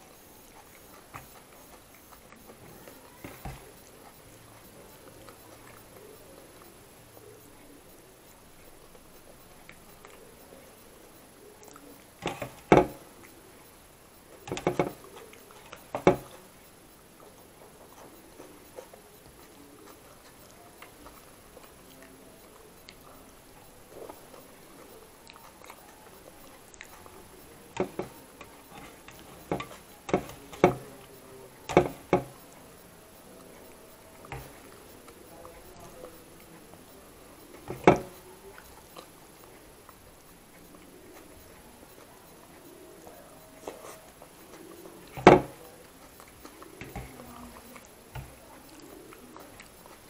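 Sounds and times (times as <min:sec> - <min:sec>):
crunches and mouth clicks: 0:00.0 - 0:50.0
person chewing food: 0:00.0 - 0:50.0
fingers clicking on steel plate: 0:25.4 - 0:32.6.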